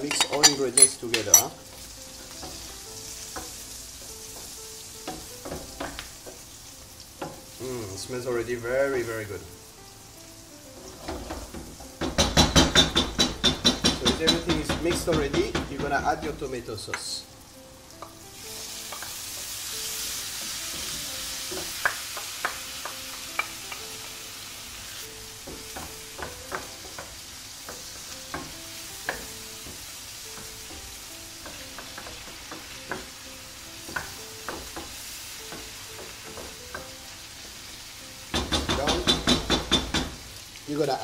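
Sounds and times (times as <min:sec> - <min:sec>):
sauce sizzling in a hot pan: 0:00.0 - 0:41.0
wooden spoon knocking on a pan: 0:02.3 - 0:06.5, 0:11.0 - 0:17.1, 0:20.4 - 0:24.2, 0:25.4 - 0:37.6, 0:38.2 - 0:40.3.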